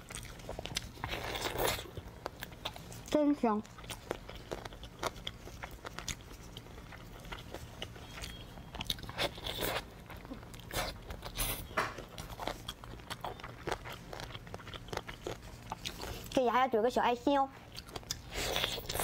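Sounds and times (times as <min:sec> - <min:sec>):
biting and chewing: 0:00.0 - 0:16.4.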